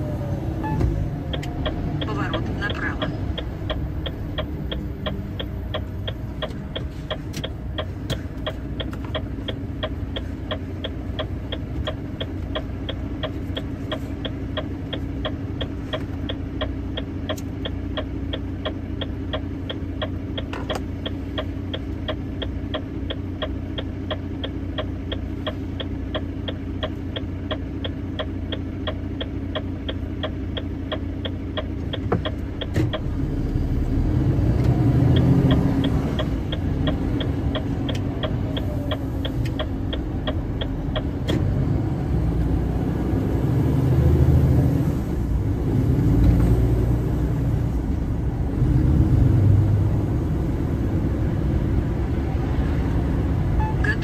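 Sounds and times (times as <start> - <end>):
truck engine idling: 0.0 - 33.8
turn signal relay ticking: 0.6 - 33.6, 34.2 - 41.6.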